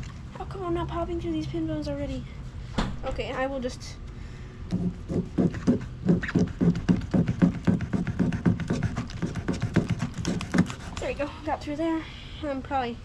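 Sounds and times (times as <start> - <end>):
knife sawing on cutting board: 4.7 - 11.2.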